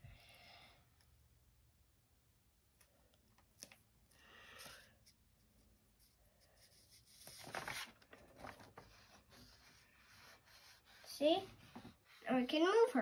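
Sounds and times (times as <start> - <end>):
paper rustling and rubbing: 5.0 - 12.9.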